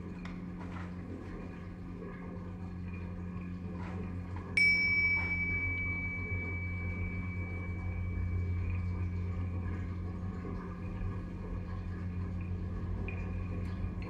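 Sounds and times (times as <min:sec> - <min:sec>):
steady low hum: 0:00.0 - 0:14.0
metal percussion ringing: 0:04.6 - 0:09.8.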